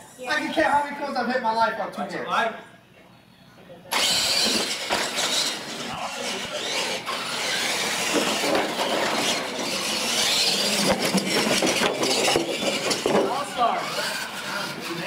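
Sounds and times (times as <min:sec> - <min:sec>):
rc truck motors whining: 0:03.9 - 0:15.0.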